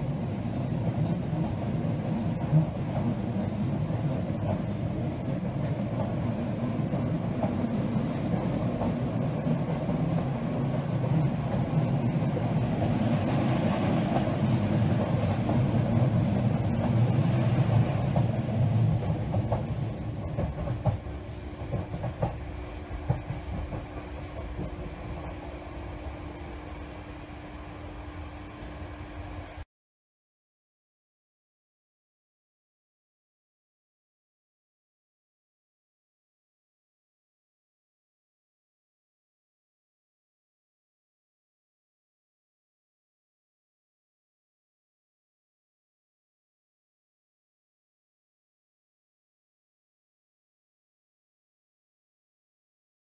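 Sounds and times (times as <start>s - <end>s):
train wheels rumbling on rail: 0.0s - 29.6s.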